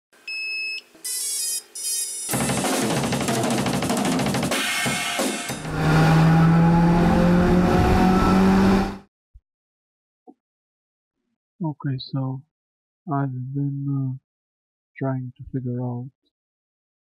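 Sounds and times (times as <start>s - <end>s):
fast drumming with cymbals: 2.3s - 5.6s.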